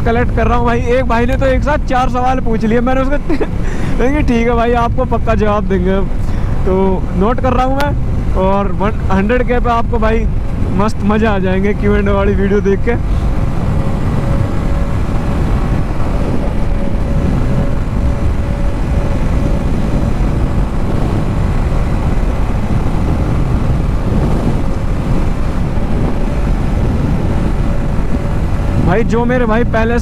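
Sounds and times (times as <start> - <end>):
wind buffeting microphone: 0.0 - 30.0
motorcycle engine running: 12.8 - 29.2.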